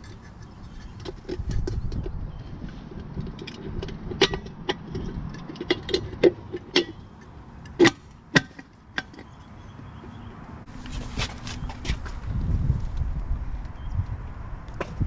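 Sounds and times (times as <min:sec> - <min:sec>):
metal hub cap clicking and clinking: 0:00.0 - 0:09.5.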